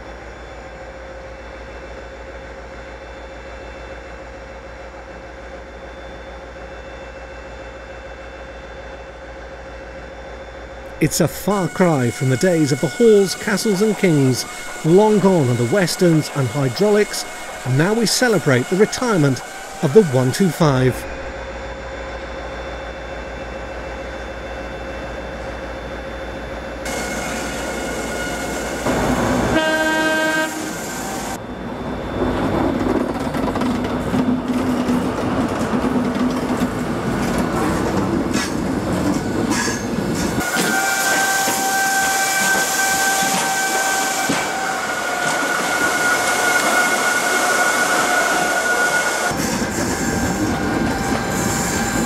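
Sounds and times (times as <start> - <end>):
train running: 0.0 - 52.0
high wheel squeal: 10.9 - 21.4, 26.3 - 29.6, 38.4 - 52.0
train horn blast: 10.9 - 21.4, 26.8 - 31.4, 40.4 - 52.0.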